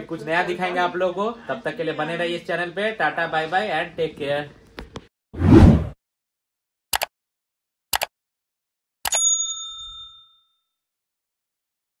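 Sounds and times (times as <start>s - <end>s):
mouse clicks: 7.9s - 8.1s
bright bell ding: 9.1s - 10.8s.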